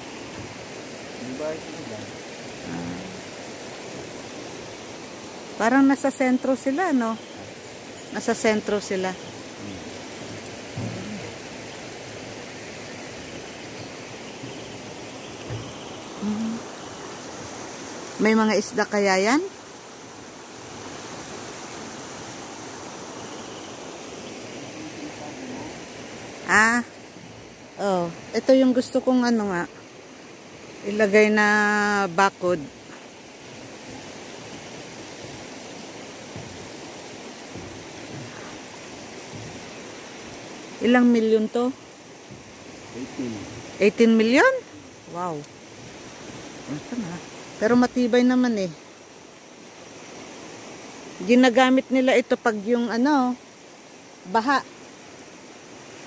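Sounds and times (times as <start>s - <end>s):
river water rushing: 0.0s - 56.0s
stream running over rocks: 0.0s - 56.0s
faint low knock: 10.7s - 11.2s
short low thump: 10.7s - 11.3s.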